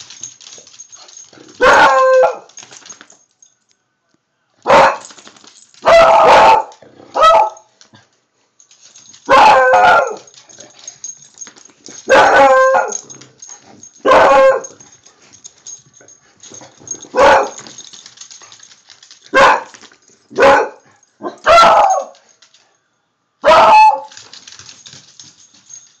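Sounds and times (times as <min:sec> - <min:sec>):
dogs barking: 0:01.1 - 0:02.5, 0:04.7 - 0:05.1, 0:05.8 - 0:07.6, 0:09.2 - 0:10.4, 0:12.0 - 0:13.1, 0:14.0 - 0:14.8, 0:16.9 - 0:17.8, 0:19.3 - 0:22.2, 0:23.4 - 0:24.1.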